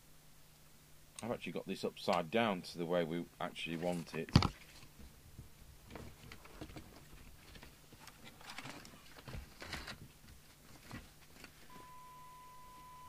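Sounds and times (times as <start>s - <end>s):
steady high test tone: 11.7s - 13.0s.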